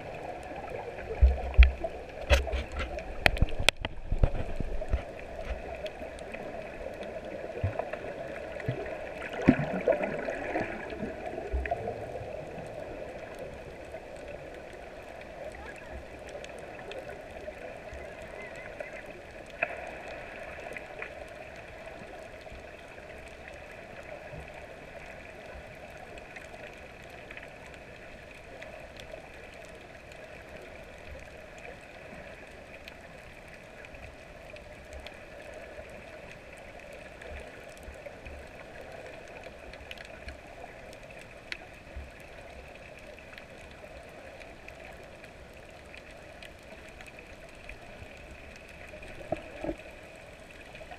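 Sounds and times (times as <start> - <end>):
small underwater clicks: 0.0 - 50.9.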